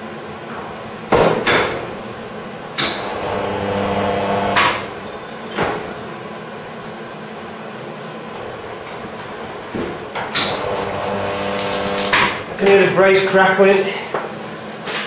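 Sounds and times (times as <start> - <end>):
electrical welding hum: 0.0 - 13.8
sharp welding crackle: 2.8 - 5.1, 10.3 - 12.8.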